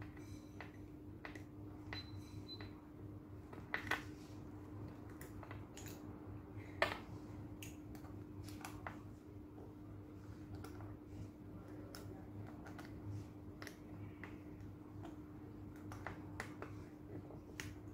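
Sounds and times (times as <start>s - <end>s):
steady low hum: 0.0s - 17.9s
small clicks and taps: 11.7s - 17.9s.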